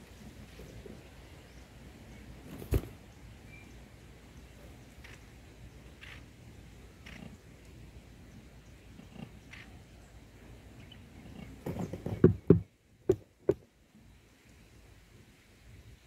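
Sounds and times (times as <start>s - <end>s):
sharp knocks: 11.6s - 13.6s.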